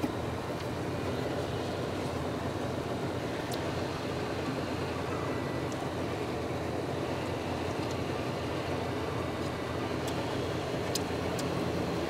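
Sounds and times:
faint light ticks: 7.7 - 8.0, 9.4 - 10.2, 10.8 - 11.6.

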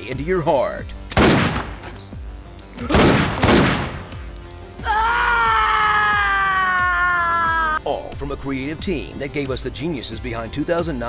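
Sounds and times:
woman screaming: 4.8 - 7.8.

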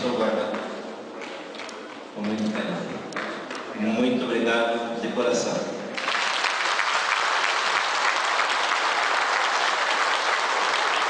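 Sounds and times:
crowd clapping: 0.5 - 3.7, 5.9 - 11.0.

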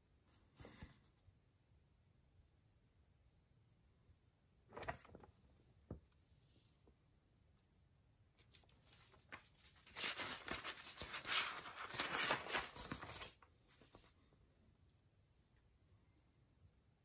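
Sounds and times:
paper pages rustling: 4.7 - 5.3, 8.4 - 14.3.

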